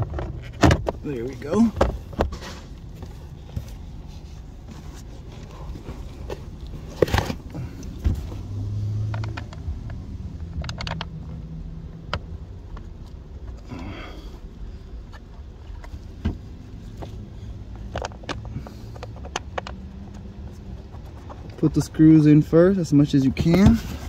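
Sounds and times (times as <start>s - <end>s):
hard plastic knocks and scraping: 0.0s - 8.4s, 9.0s - 11.4s, 15.1s - 22.0s, 23.4s - 24.0s.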